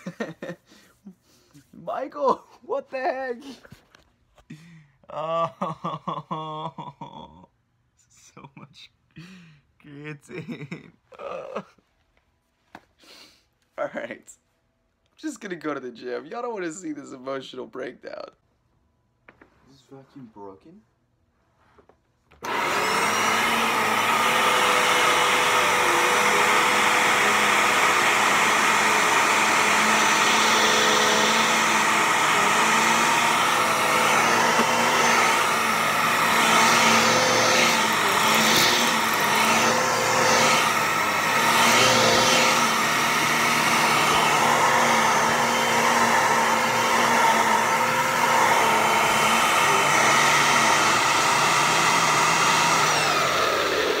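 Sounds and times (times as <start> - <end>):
vacuum cleaner running: 22.4 - 54.0.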